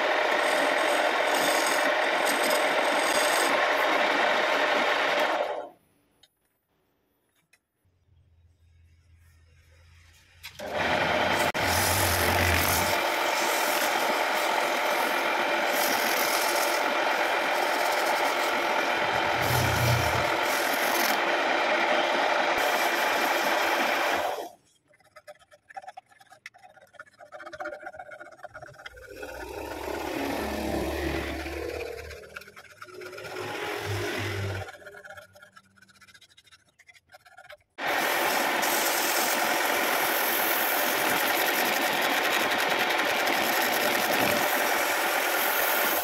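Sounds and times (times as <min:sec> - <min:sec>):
wood lathe motor running: 0:00.0 - 0:05.7, 0:10.6 - 0:24.5, 0:29.1 - 0:35.5, 0:37.8 - 0:46.0
sandpaper scrubbing wood: 0:11.4 - 0:21.2, 0:33.4 - 0:46.0.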